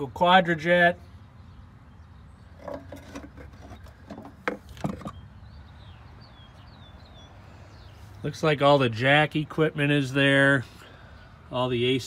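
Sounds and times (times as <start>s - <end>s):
metallic knocks and scrapes: 2.6s - 5.2s.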